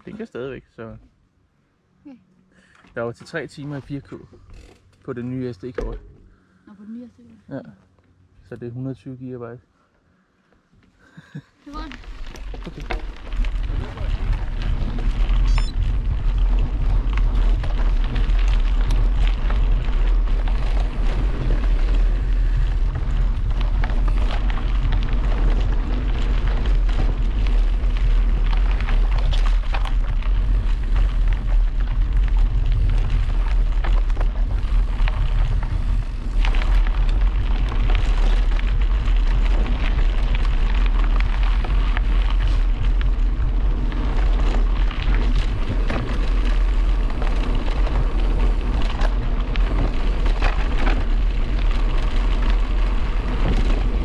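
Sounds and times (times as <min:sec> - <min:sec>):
wind buffeting microphone: 0:11.8 - 0:54.0
bike knocks and rattles: 0:12.0 - 0:54.0.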